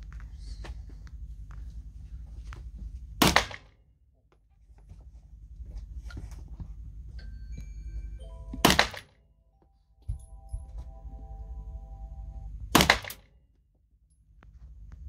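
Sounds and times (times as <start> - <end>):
handgun shots with echo: 3.2 - 3.7, 8.6 - 9.1, 12.8 - 13.2.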